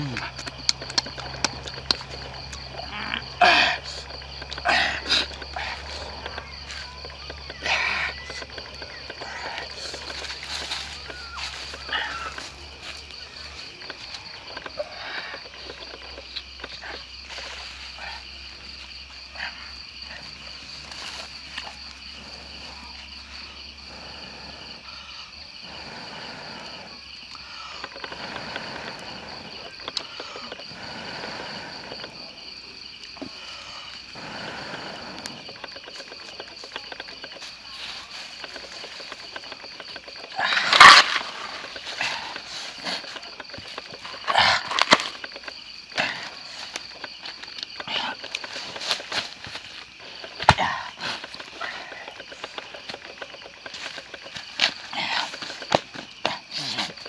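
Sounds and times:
insects trilling: 0.0s - 57.0s
lower pulsing insect band: 0.0s - 57.0s.

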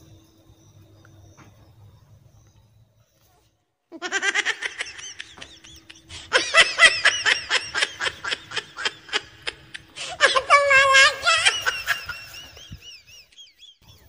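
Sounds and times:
high-pitched giggling: 3.9s - 13.6s.

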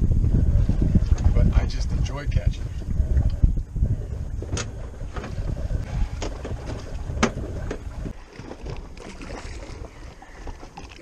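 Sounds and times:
water against boat hull: 0.0s - 11.0s
wind rumbling on microphone: 0.0s - 11.0s
sharp splashes: 8.2s - 11.0s.

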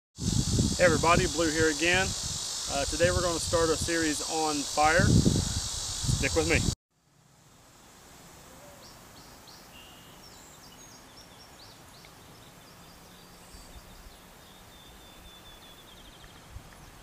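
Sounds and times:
steady background hiss: 0.2s - 17.0s
small birds chirping: 8.7s - 17.0s.

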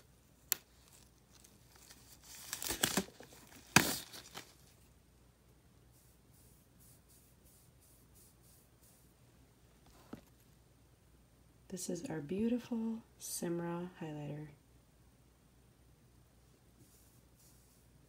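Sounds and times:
rustling crinkling handling noise: 0.0s - 5.0s.

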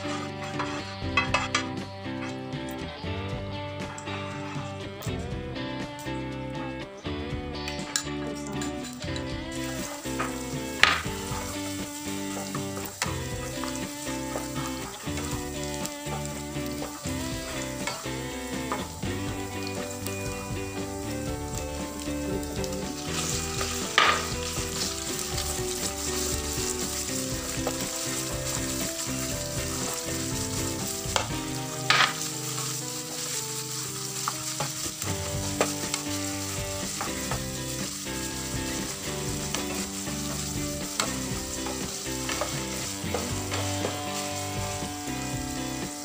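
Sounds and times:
food sizzling in hot oil: 7.9s - 46.0s
plastic spatula stirring in pan: 9.5s - 46.0s.

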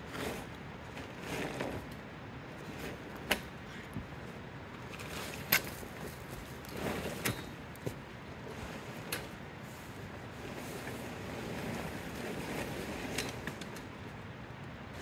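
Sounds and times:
tent fabric rustling: 0.1s - 1.9s, 4.9s - 13.6s.

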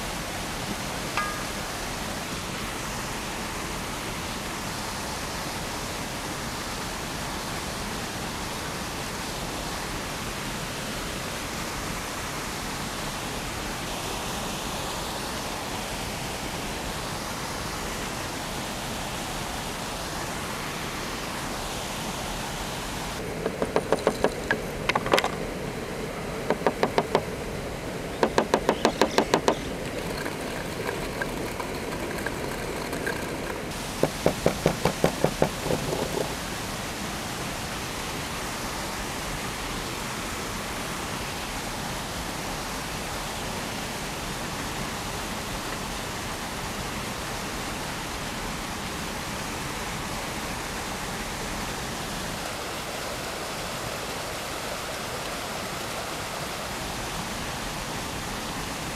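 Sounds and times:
steady hiss: 0.0s - 58.9s
knife chopping on cutting board: 34.0s - 36.3s.

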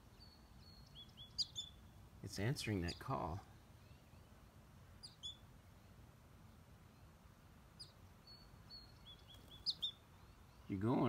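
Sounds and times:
high bird chirping: 0.0s - 4.4s, 5.0s - 6.0s, 6.8s - 11.0s.

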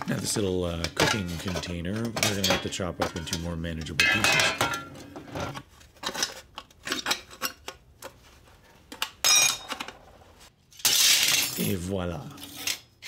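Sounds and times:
metal pieces clattering: 10.7s - 11.8s.

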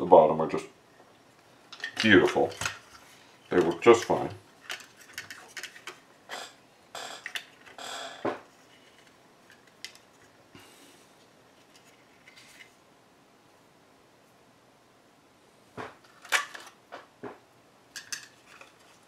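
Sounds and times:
plastic earmuffs handled: 1.7s - 10.5s, 11.2s - 12.8s, 18.0s - 19.0s.

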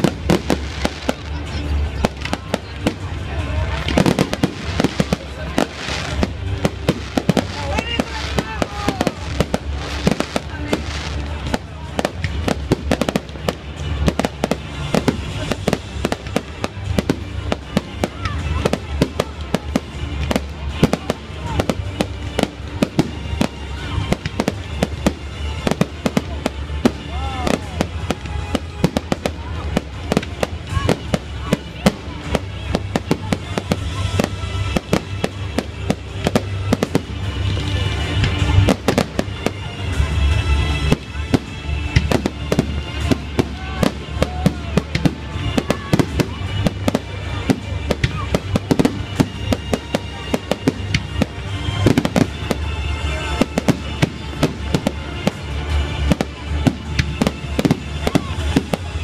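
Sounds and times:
fireworks bangs and crackles: 0.0s - 59.0s
music: 0.0s - 59.0s.

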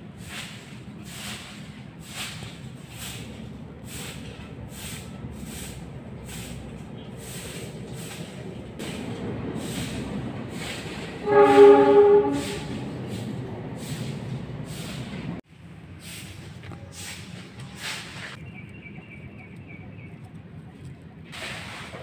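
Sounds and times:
loud multi-tone horn: 11.2s - 13.0s.

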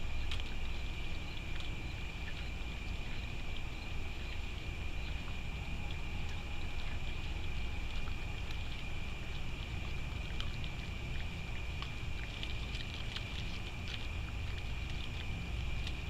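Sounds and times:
continuous high whine: 0.0s - 16.0s
raccoon chewing and crunching: 0.0s - 16.0s
steady low rumble: 0.0s - 16.0s.

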